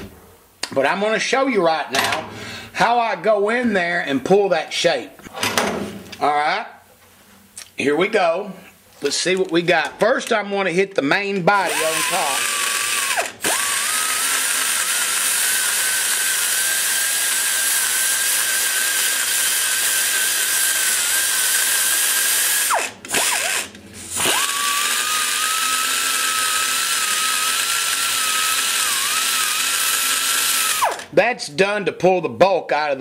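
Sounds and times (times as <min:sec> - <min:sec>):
die grinder whining: 0:11.6 - 0:31.1.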